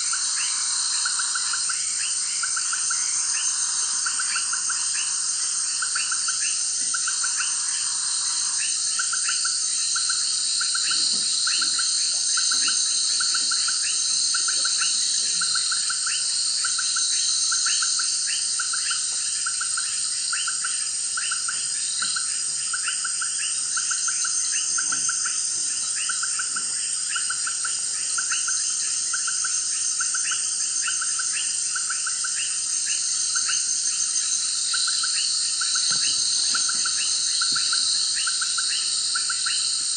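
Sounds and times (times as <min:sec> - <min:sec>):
high-pitched insect drone: 0:00.0 - 0:39.9.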